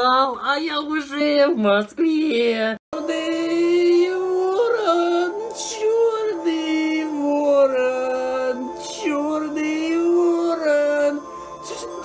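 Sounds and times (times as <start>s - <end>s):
man singing unaccompanied: 2.9s - 12.0s.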